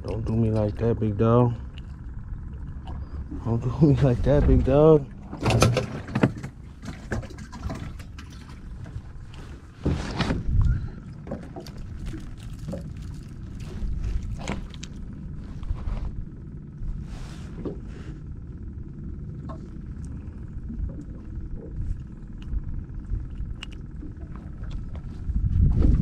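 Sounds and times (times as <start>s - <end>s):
steady low rumble: 0.0s - 26.0s
knocks and clicks in metal boat: 4.3s - 9.1s.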